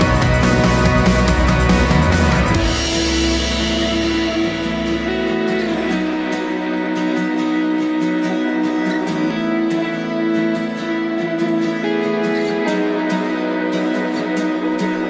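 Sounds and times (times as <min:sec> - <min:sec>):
deep low note: 0:00.0 - 0:07.0
plucked guitar background music: 0:00.0 - 0:15.0.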